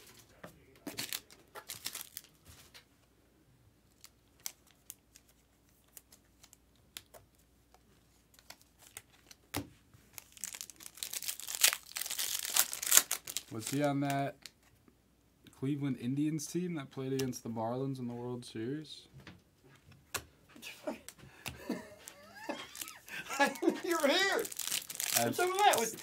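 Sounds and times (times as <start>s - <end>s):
foil wrapper crinkling: 0.9s - 2.7s, 10.1s - 14.5s, 21.0s - 26.0s.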